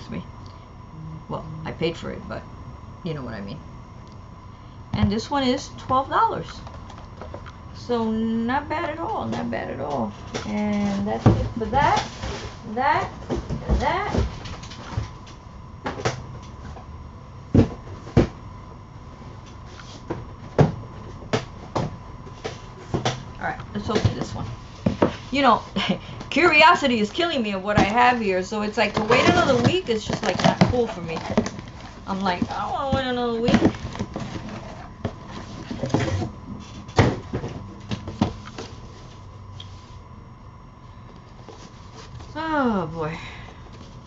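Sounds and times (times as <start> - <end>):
cardboard flaps rustling: 28.7 - 39.2.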